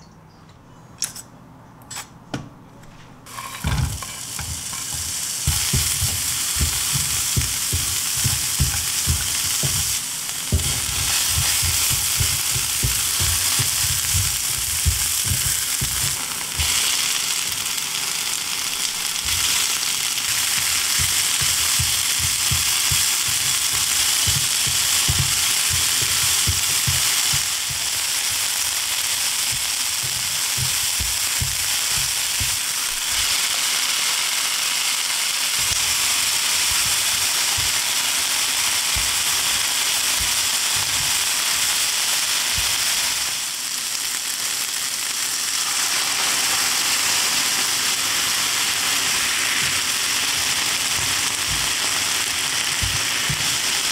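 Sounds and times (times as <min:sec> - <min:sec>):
chopsticks scraping a pan: 0:03.3 - 0:17.6, 0:18.8 - 0:33.4, 0:35.6 - 0:38.0
vegetables sizzling in oil: 0:03.3 - 0:53.9.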